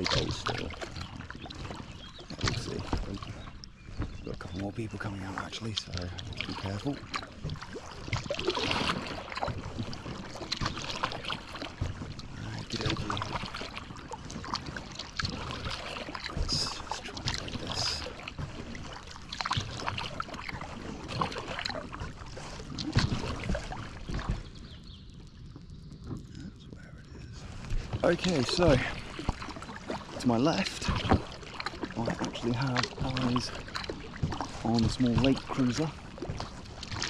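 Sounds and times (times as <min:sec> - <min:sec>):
paddle splashing in water: 0:00.0 - 0:37.0.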